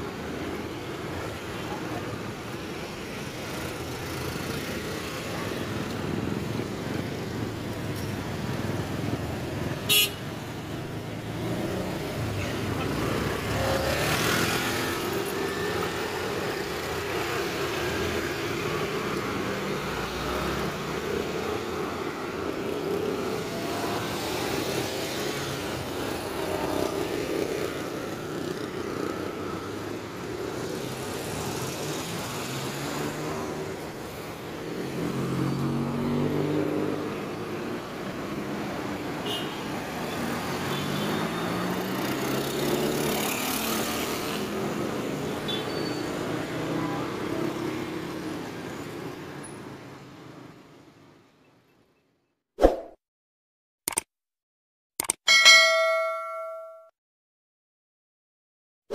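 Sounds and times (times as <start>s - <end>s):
cars and motorcycles passing: 0.0s - 51.4s
sharp click: 53.9s - 54.1s, 55.0s - 55.2s.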